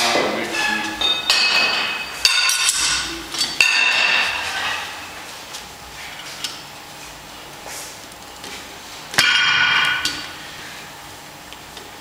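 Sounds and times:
weight plates clanking: 0.1 - 5.2.

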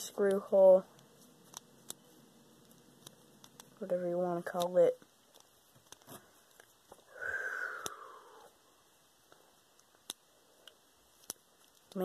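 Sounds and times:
breathy sigh: 7.0 - 8.6.

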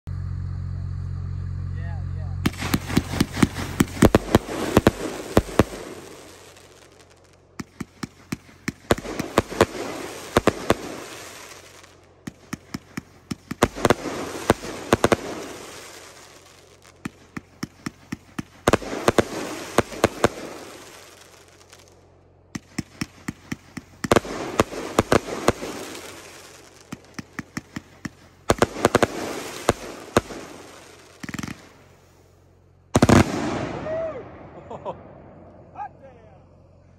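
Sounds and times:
firework crackle: 0.1 - 35.8
firework volleys cracking: 0.1 - 36.9
loud firework bang: 2.4 - 7.0, 33.0 - 35.7.

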